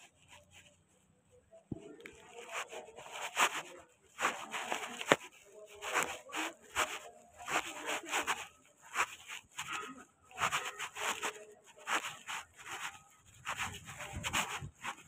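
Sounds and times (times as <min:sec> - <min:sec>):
footsteps on gritty dirt: 0:04.2 - 0:09.7.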